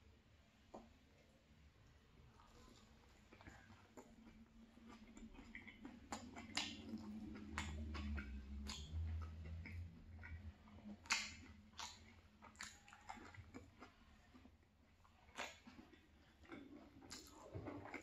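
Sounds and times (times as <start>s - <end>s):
person chewing food: 2.3s - 18.0s
wet mouth clicks and smacks: 3.3s - 14.0s, 15.3s - 18.0s.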